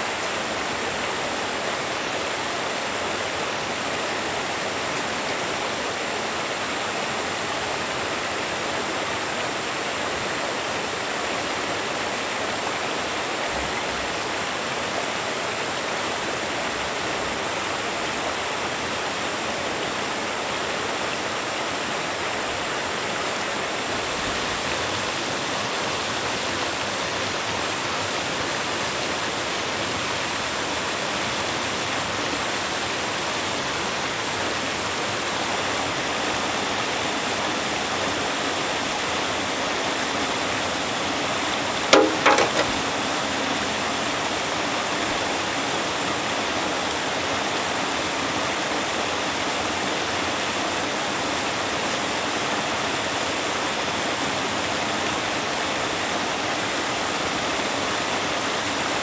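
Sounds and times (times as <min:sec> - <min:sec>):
clatter of sharp knocks: 0:41.9 - 0:42.8.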